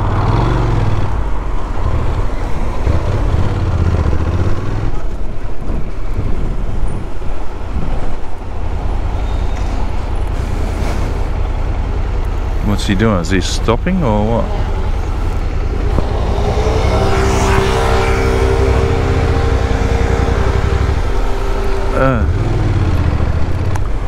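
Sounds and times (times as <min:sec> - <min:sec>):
wind and road noise: 0:00.0 - 0:24.0
motorcycle engine running: 0:14.4 - 0:24.0.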